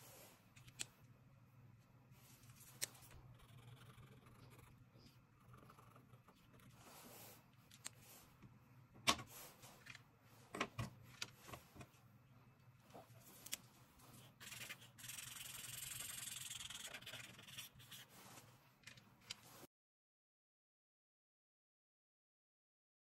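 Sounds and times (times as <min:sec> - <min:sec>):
marker scratching on paper: 0:03.1 - 0:07.4, 0:14.1 - 0:18.4.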